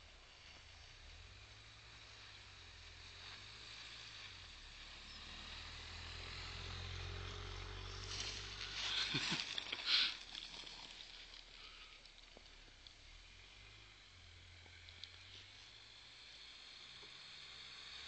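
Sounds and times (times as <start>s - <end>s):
car engine driving past: 0.0s - 18.0s
snowboard scraping over snow: 7.8s - 11.0s.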